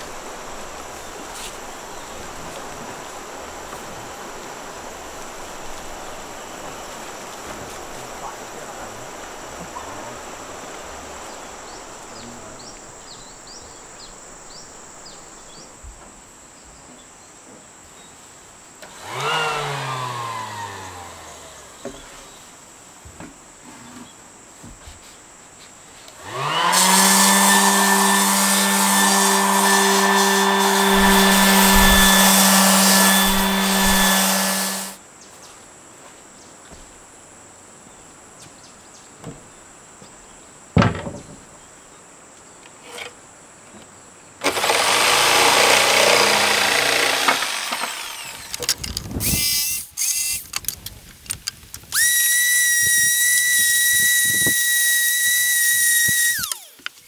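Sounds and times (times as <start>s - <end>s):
insects: 0.0s - 29.1s, 35.0s - 57.0s
small high-speed motor: 18.8s - 21.8s, 26.2s - 35.0s, 44.4s - 50.5s, 51.9s - 57.0s.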